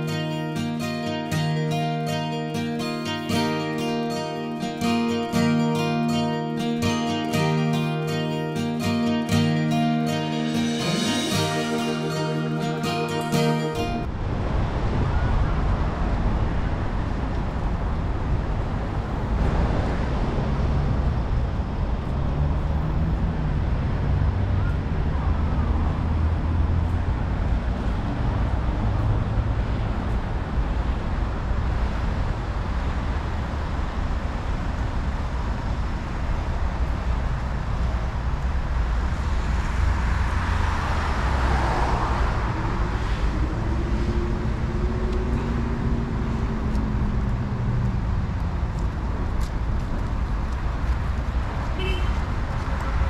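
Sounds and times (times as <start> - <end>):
road traffic: 0.0 - 53.0
vehicle passing close: 39.0 - 50.5.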